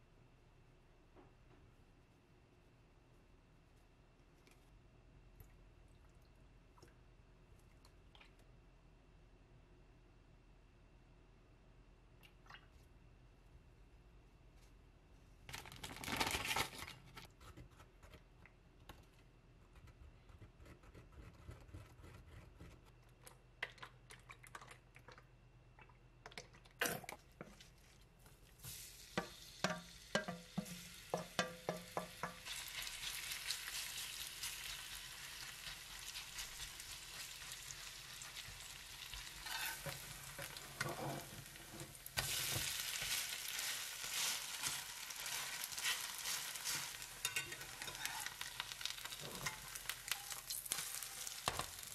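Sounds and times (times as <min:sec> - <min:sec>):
batter sizzling in frying pan: 0:28.6 - 0:51.9
spoon scraping in glass bowl: 0:39.4 - 0:40.0, 0:46.7 - 0:48.4
bowl and spoon clinking: 0:47.2 - 0:48.2.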